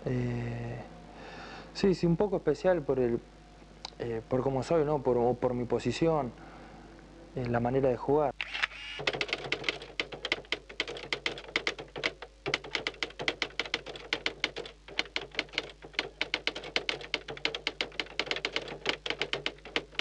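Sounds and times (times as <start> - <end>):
typewriter keystroke clicks: 9.0 - 20.0.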